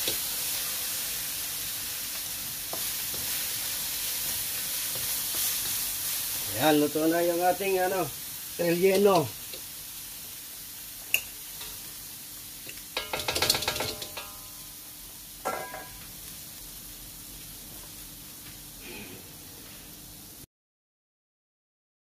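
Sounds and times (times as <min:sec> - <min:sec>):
meat sizzling in a wok: 0:00.0 - 0:20.5
spatula clanking against wok: 0:12.7 - 0:14.6, 0:15.4 - 0:16.0.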